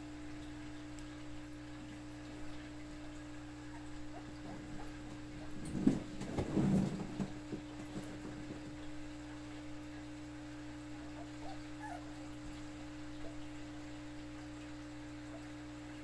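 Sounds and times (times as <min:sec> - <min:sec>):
dog whimpering faintly: 0:11.0 - 0:12.6.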